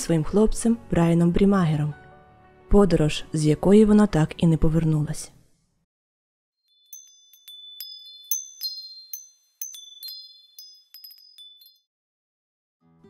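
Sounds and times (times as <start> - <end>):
wind chimes tinkling: 6.7 - 11.9.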